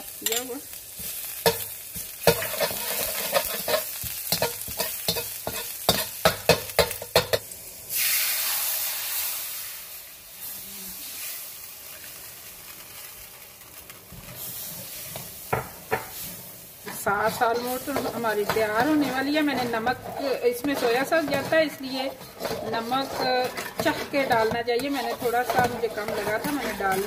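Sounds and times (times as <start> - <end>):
garlic sizzling in oil: 0.0 - 27.0
metal spatula scraping a wok: 0.2 - 8.1, 14.2 - 27.0.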